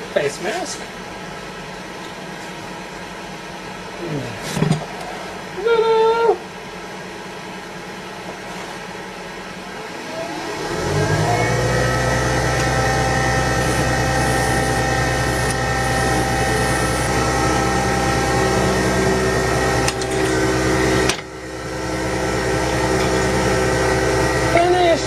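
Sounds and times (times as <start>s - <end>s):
lathe motor hum and whine: 9.1s - 25.0s.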